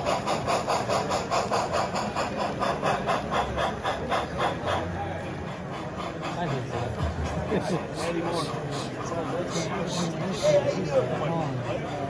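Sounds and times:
model steam locomotive chuffing: 0.0s - 12.0s.

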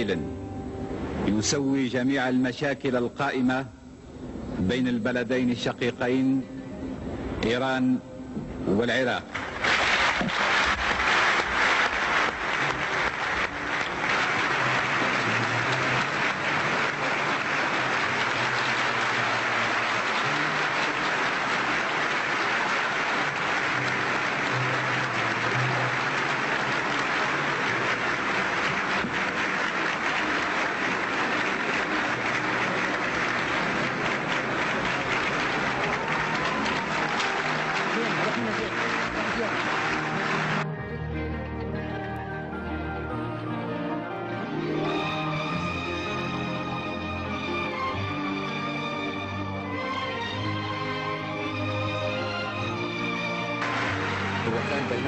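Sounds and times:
audience applauding: 9.0s - 41.0s, 44.4s - 55.0s.

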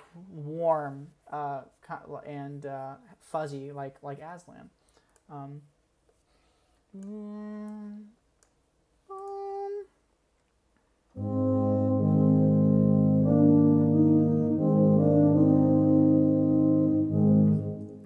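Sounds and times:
sampled brass notes and chords: 11.1s - 18.0s.

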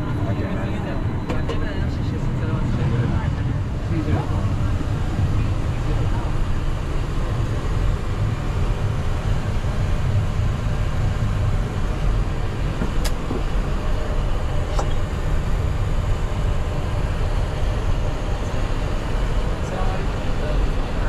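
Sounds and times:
low rumbling background noise: 0.0s - 21.0s.

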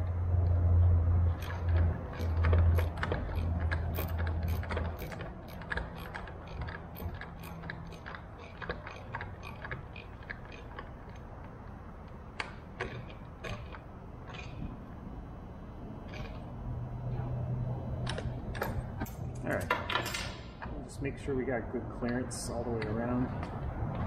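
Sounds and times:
low hum: 0.0s - 24.0s
socket ratchet clicking: 1.4s - 14.6s.

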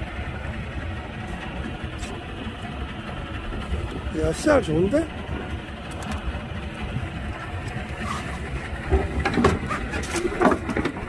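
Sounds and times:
boat engine hum: 0.0s - 11.0s
wind buffeting microphone: 0.0s - 11.0s.

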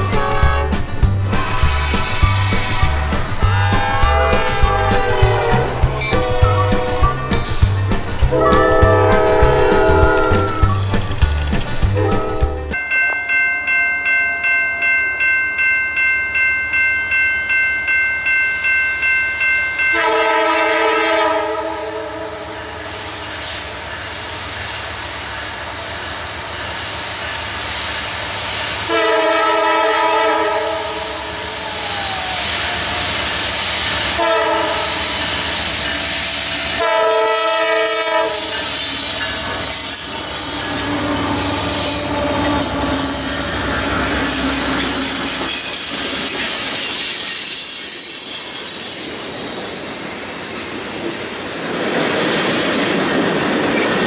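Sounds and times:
locomotive chime horn: 0.0s - 7.5s, 8.3s - 10.8s, 12.0s - 13.8s, 19.3s - 22.8s, 28.8s - 45.7s
train rumbling and clattering: 0.0s - 13.3s, 19.9s - 54.0s
crossing bell ringing: 0.0s - 23.0s, 28.8s - 50.2s.

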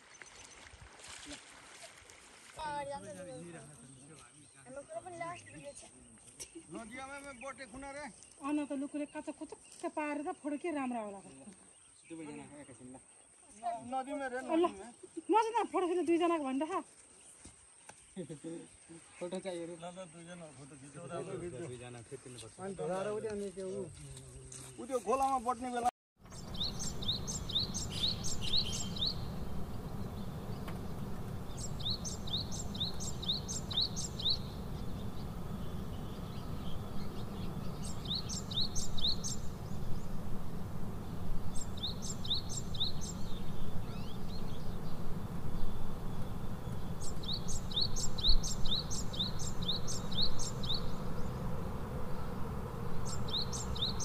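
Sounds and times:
steady low rumble: 26.2s - 54.0s
bird singing high chirps: 26.3s - 54.0s.

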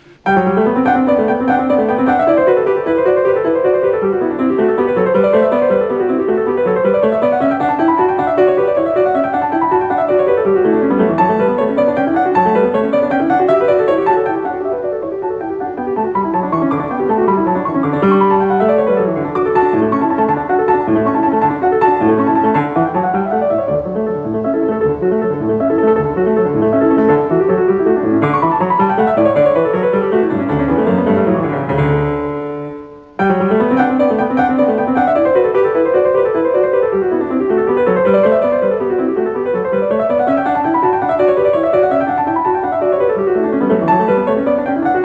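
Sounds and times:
piano music with fast runs: 0.2s - 45.0s.

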